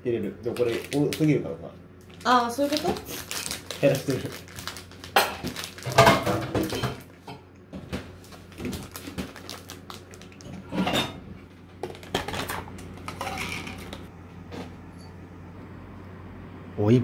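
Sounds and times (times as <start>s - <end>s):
snack bag rustling: 0.5s - 1.3s, 2.0s - 6.2s, 8.2s - 10.6s
tableware clicks and clinks: 12.1s - 14.0s.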